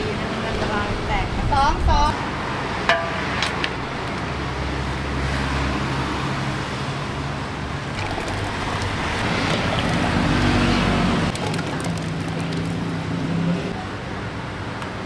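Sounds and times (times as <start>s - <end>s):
roadside traffic noise: 0.0s - 15.0s
vehicle passing: 4.4s - 13.8s.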